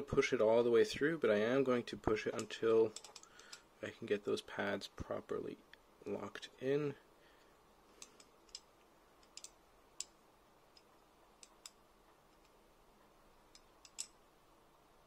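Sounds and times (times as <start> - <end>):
metal tubing clicking: 2.4 - 3.7, 8.0 - 12.6, 13.5 - 14.2.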